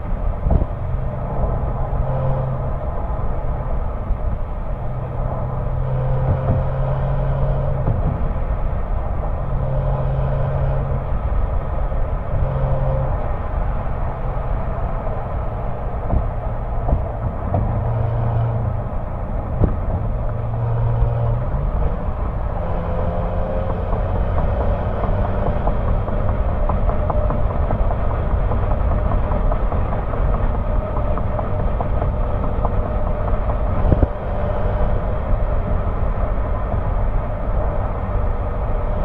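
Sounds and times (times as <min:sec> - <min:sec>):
car exhaust drone at cruise: 0:00.0 - 0:39.0
road noise: 0:00.0 - 0:39.0
wind noise: 0:00.0 - 0:39.0.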